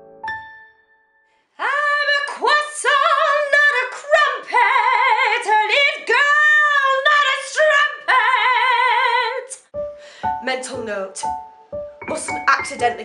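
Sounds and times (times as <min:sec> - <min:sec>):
woman singing with vibrato: 0:01.6 - 0:09.6, 0:12.1 - 0:13.0.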